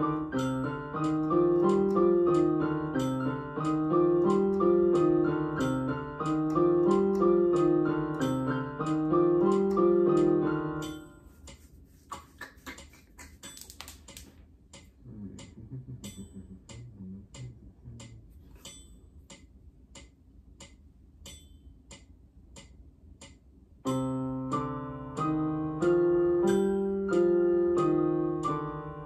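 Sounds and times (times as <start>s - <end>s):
keyboard notes: 0.0s - 11.4s, 23.8s - 29.0s
metronome clicking: 0.3s - 11.6s, 13.4s - 28.9s.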